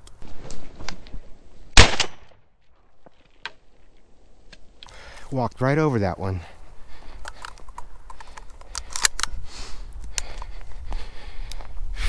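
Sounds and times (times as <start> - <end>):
footsteps crunching on dry ground: 4.9 - 8.7.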